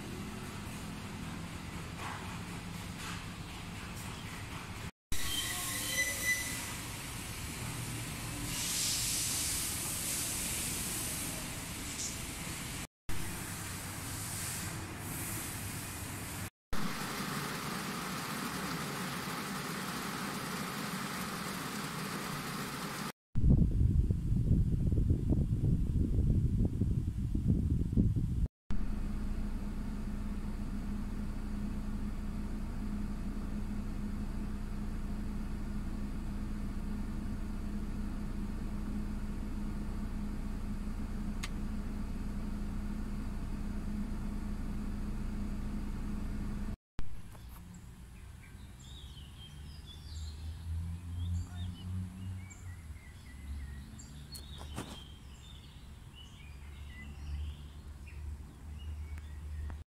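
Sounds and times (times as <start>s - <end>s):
bird chirps: 47.3s - 59.8s.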